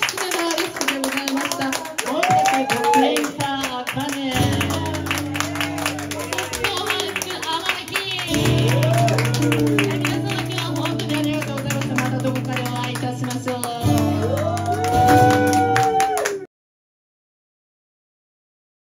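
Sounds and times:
acoustic guitar strumming: 4.3 - 15.8.

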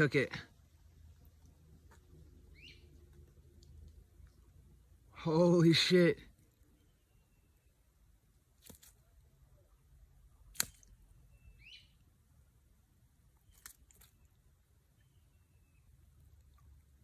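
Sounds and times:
faint chirp: 2.5 - 3.0, 6.5 - 8.0, 11.2 - 12.1, 13.4 - 16.4
faint sharp clicks: 3.0 - 4.4.

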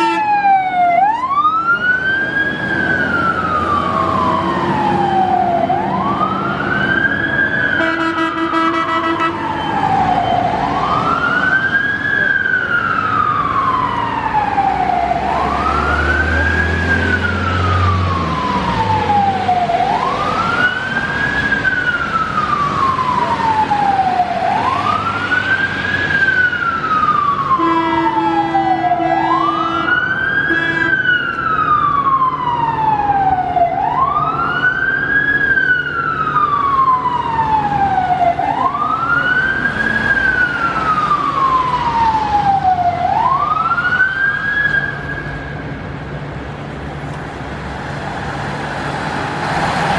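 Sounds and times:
fire engine siren wailing: 0.0 - 49.9
short horn blasts: 7.8 - 9.4.

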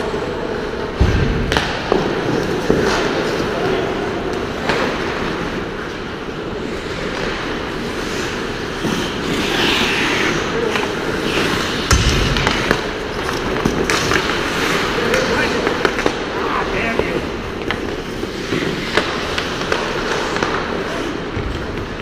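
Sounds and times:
hockey sticks and puck clacking: 0.1 - 22.0
skate blades scraping ice: 1.5 - 22.0
heavy thud: 11.9 - 12.8.

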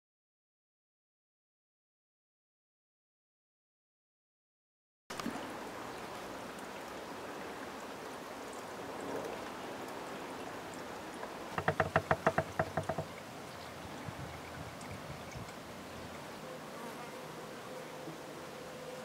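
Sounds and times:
soft outdoor hiss: 5.1 - 19.0
fast rattling pitched pulses: 11.6 - 13.2.

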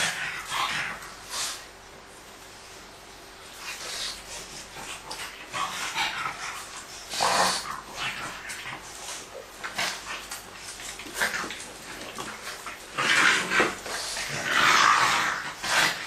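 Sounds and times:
puppies playing and growling: 0.0 - 16.0.

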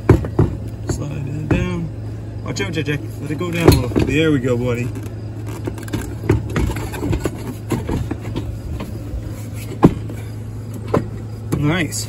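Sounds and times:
plastic seat knocks and rattles: 0.0 - 1.8, 3.6 - 9.0, 9.7 - 10.2, 10.8 - 11.7
steady low hum: 0.0 - 12.0.

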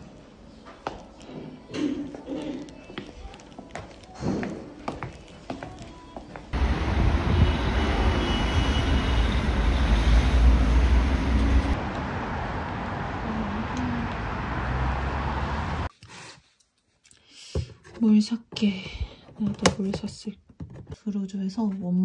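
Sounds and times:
distant traffic rumble: 6.6 - 15.9.

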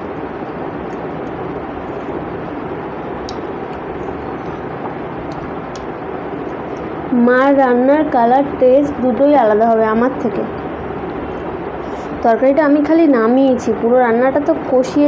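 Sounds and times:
steady rumbling background noise: 0.0 - 15.0.

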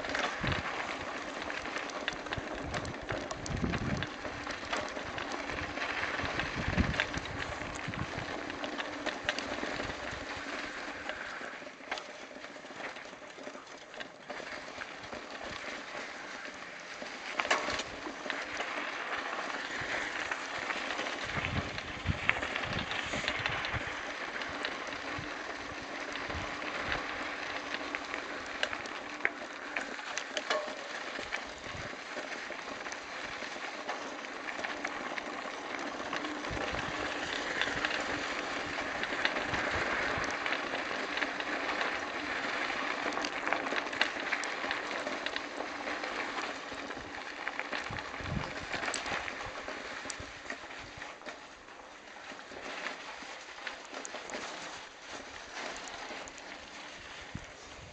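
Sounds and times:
bike tyres crunching on gravel: 0.0 - 57.9.

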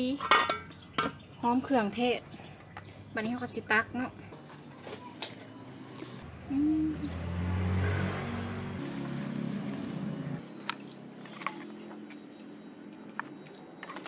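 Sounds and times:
ladle clinking against pot: 0.2 - 1.2
vehicle engine running: 5.8 - 11.2.

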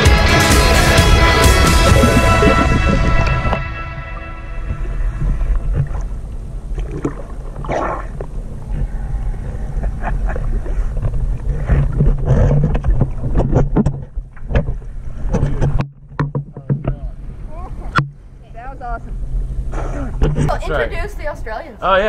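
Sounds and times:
steady low rumble: 0.0 - 16.2, 16.9 - 21.8
sea water lapping and splashing: 1.4 - 15.7.

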